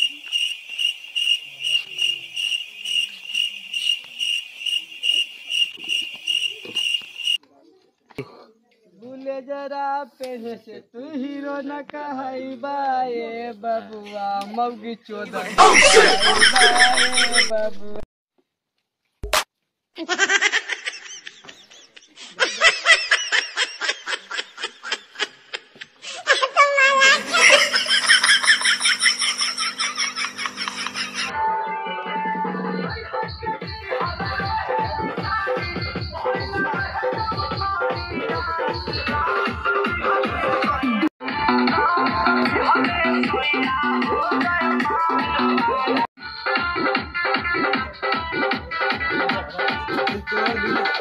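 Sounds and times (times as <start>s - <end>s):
cricket chirping: 0.0s - 7.4s, 27.4s - 31.3s
people laughing: 15.2s - 18.0s, 20.0s - 31.3s.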